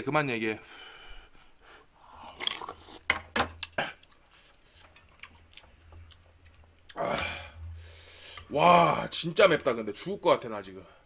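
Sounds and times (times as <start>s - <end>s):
slurping and chewing noodles: 2.2s - 7.0s.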